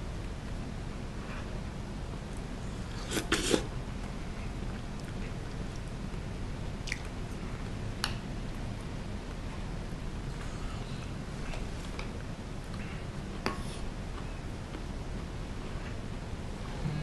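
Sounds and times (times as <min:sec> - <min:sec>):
low room hum: 0:00.0 - 0:17.0
short slurp: 0:02.9 - 0:03.7.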